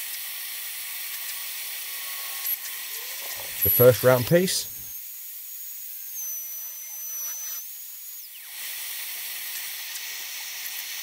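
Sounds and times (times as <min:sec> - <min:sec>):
router cutting plywood hiss: 0:01.1 - 0:11.0
thin high whine: 0:02.0 - 0:04.9.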